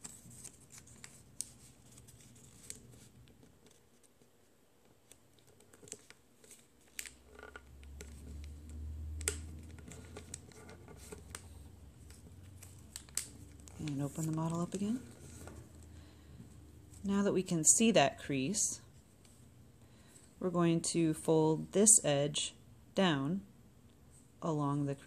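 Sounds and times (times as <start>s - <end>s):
paper rustling: 0.0s - 8.4s, 9.4s - 15.8s
fingernails clicking on paper folds: 0.0s - 15.6s.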